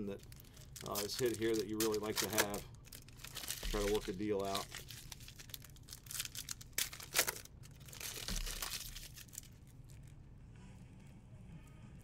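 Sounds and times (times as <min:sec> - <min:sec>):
cards rustling and snapping: 0:00.2 - 0:09.6.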